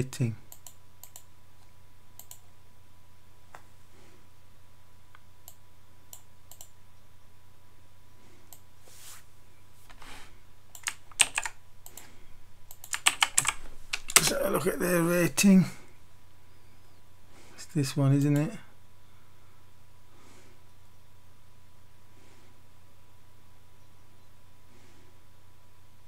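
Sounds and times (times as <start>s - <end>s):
low steady hum: 0.0s - 26.0s
keyboard typing: 2.2s - 2.4s, 10.7s - 14.8s.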